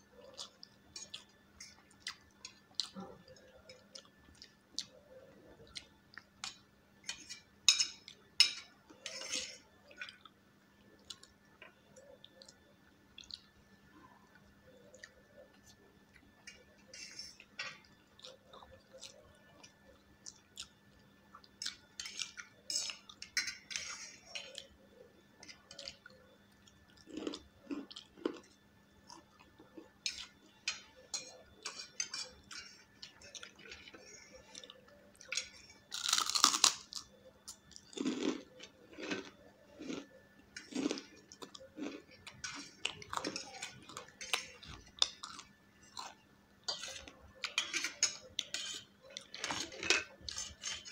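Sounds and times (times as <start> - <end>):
forks clinking on steel plates: 6.4 - 9.6, 46.7 - 48.8, 49.4 - 50.9.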